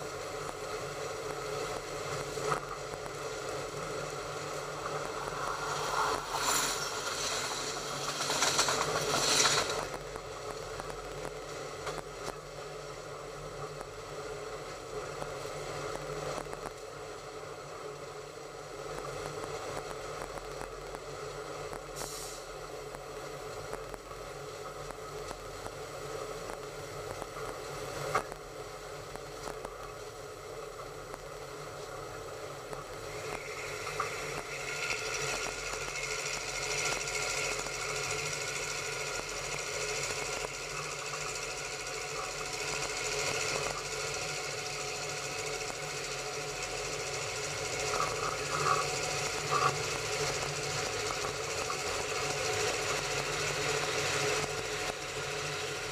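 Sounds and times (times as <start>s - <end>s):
train rattling along track: 0.0s - 12.0s, 32.4s - 55.9s.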